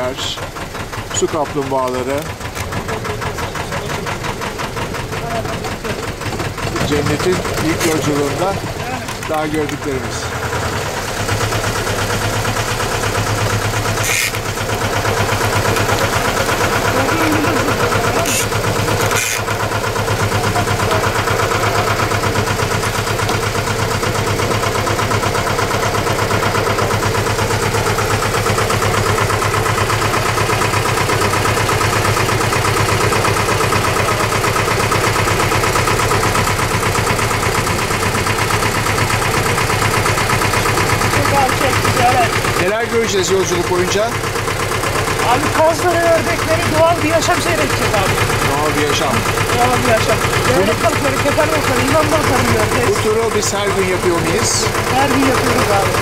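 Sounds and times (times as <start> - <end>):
boat engine humming: 0.0 - 56.0.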